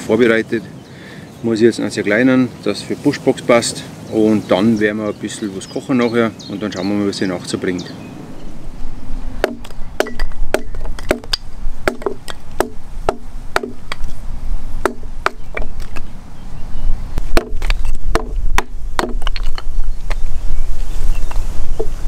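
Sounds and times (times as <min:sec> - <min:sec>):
hatchet chopping wood: 0:09.4 - 0:14.1, 0:14.8 - 0:16.0, 0:17.3 - 0:20.2.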